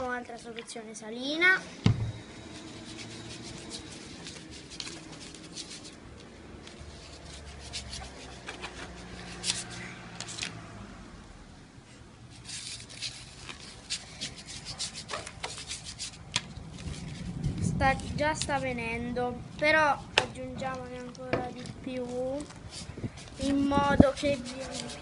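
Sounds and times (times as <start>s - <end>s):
spoon stirring slime: 2.4s - 6.0s, 20.7s - 25.0s.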